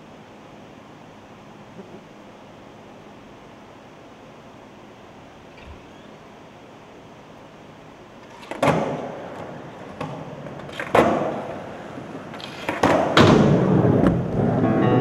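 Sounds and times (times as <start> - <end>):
skateboard wheels rumbling: 8.2 - 14.9
skateboard slamming on wooden ramp: 8.4 - 14.6.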